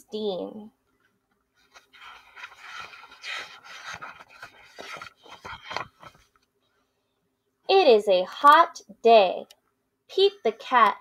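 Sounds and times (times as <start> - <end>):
book pages rustling: 1.3 - 6.5.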